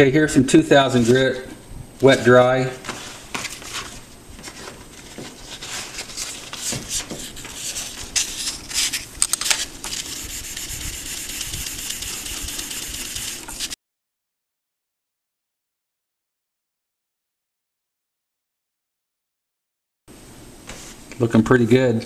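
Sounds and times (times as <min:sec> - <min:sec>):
sandpaper rubbing on stone: 0:09.9 - 0:13.8.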